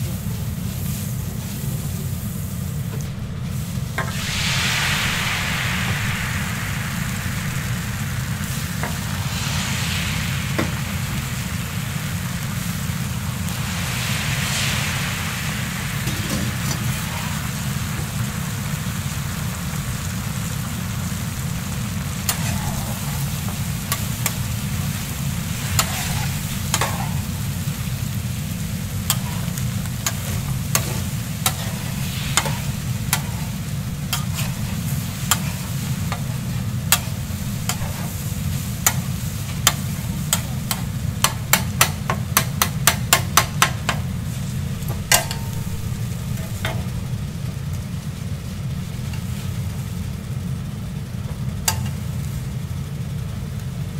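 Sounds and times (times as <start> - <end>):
steady low hum: 0.0 - 53.9
egg sizzling in oil: 0.3 - 53.9
metal scraper on griddle: 22.3 - 23.2, 25.6 - 27.2, 29.1 - 33.5, 34.1 - 36.3, 36.9 - 38.2.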